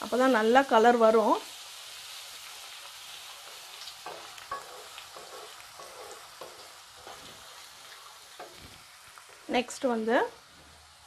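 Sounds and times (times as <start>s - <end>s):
spices sizzling in hot oil: 0.0s - 11.0s
wooden spatula stirring and scraping: 3.3s - 10.8s.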